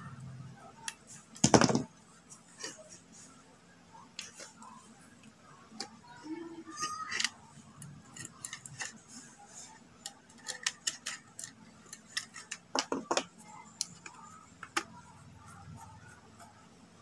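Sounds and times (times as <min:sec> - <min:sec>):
hand tools clicking and tapping: 0:10.0 - 0:15.0.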